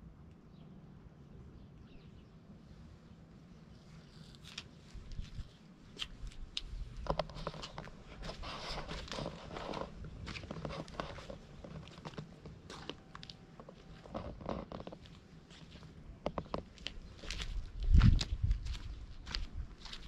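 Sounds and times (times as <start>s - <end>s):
clicks and scuffs: 4.2s - 20.0s
footsteps crunching on gravel: 4.4s - 20.0s.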